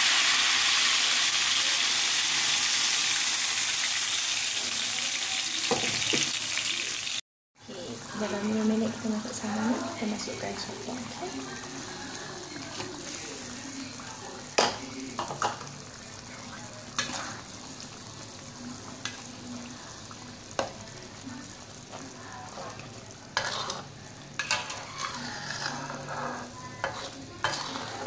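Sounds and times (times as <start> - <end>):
food hissing in a wok: 0.0 - 7.2, 15.9 - 28.0
metal spatula scraping a pan: 16.3 - 17.6, 21.9 - 28.0.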